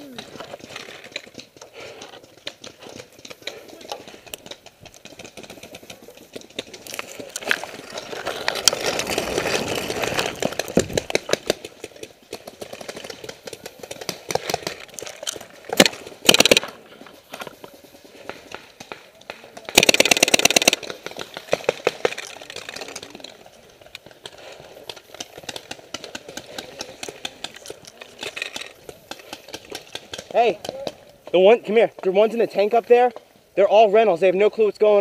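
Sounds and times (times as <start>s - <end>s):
sharp clicks and pops: 0.0s - 32.1s.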